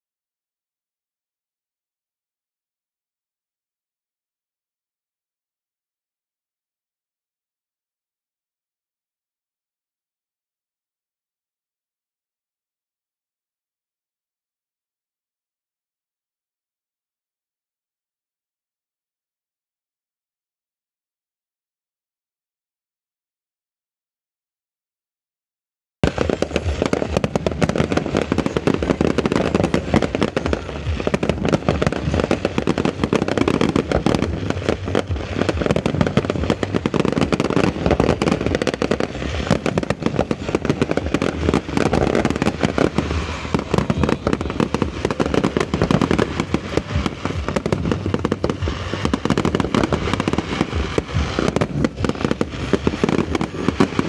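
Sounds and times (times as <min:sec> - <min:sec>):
fireworks bangs and crackling: 0:26.0 - 0:54.0.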